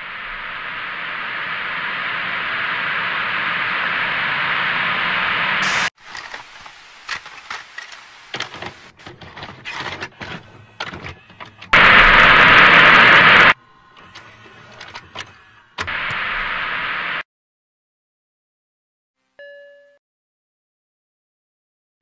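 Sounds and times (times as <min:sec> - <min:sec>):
static hiss: 0:00.0 - 0:08.9, 0:11.8 - 0:13.6, 0:15.9 - 0:17.2.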